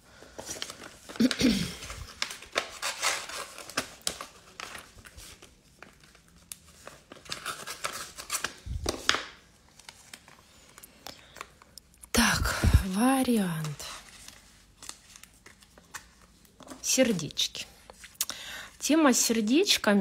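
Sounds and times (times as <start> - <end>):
sticker sheets crinkling: 0.2 - 12.1, 12.9 - 18.2.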